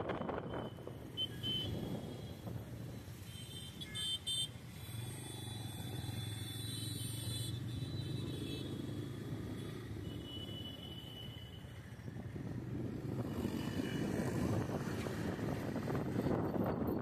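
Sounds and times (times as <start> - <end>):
engine and road hum: 0.0 - 17.0
vehicle horn beeps: 0.5 - 1.9, 3.2 - 4.6.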